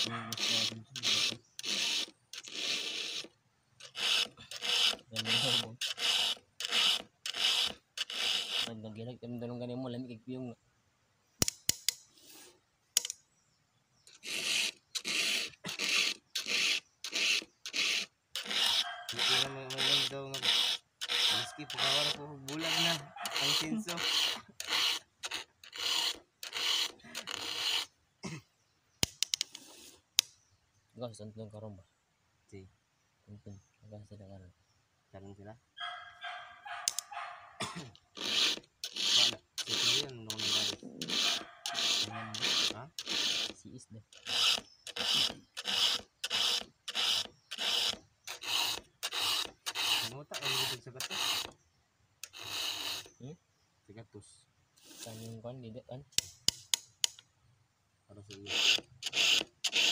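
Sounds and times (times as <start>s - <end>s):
file rasping on chainsaw chain: 0.0s - 8.9s, 14.1s - 28.0s, 35.8s - 51.6s, 52.2s - 53.2s, 54.8s - 55.4s, 58.2s - 59.9s.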